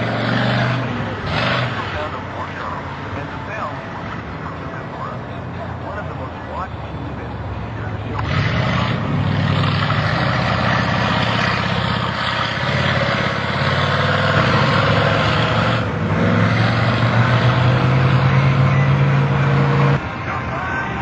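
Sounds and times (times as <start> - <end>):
monster truck engine revving: 0.0 - 2.9, 7.2 - 20.1.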